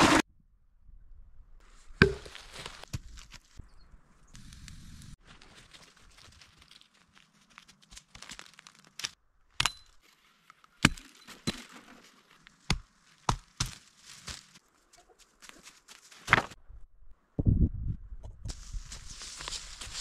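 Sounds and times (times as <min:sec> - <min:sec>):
dry leaves rustling and crunching: 0:05.2 - 0:09.2, 0:11.7 - 0:14.6, 0:18.6 - 0:20.0
dry wood cracking: 0:05.3 - 0:09.7.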